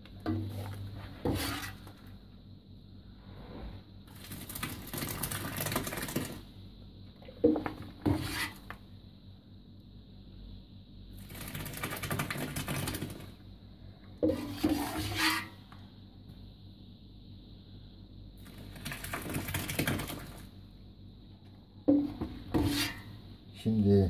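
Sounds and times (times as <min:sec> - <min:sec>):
metal pot clanking and scraping: 0:00.3 - 0:01.9, 0:14.2 - 0:15.6, 0:21.9 - 0:23.1.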